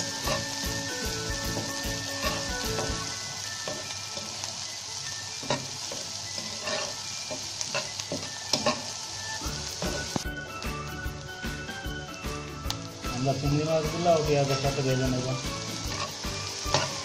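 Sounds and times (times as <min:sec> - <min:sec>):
onions sizzling in oil: 0:00.0 - 0:17.0
spatula scraping a pan: 0:00.1 - 0:00.8, 0:01.4 - 0:03.0, 0:05.4 - 0:09.0, 0:15.7 - 0:17.0.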